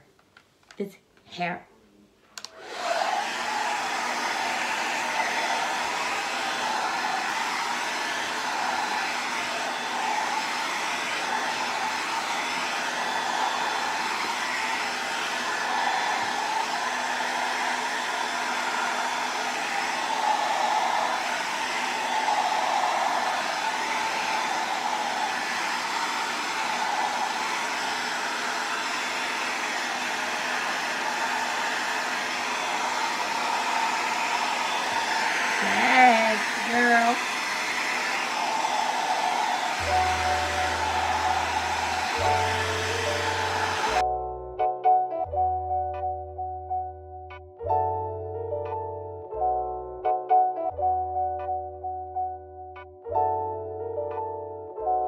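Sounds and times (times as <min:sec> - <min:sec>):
hair dryer running: 0:02.4 - 0:44.0.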